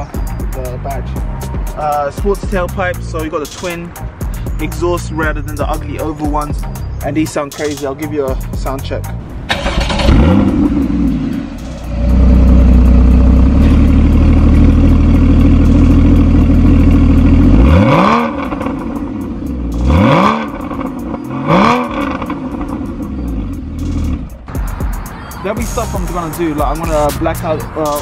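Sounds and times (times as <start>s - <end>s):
sports car engine revving: 9.5s - 24.4s.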